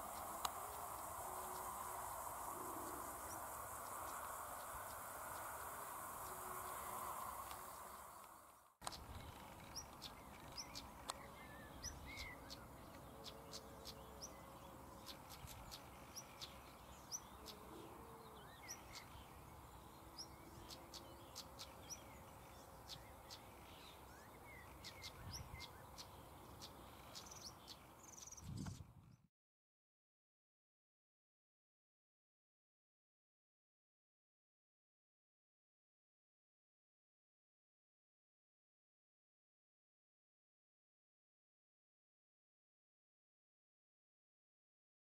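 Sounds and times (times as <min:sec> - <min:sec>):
drawn-out bird calls: 0:00.0 - 0:28.4
faint birdsong chirps: 0:00.0 - 0:29.3.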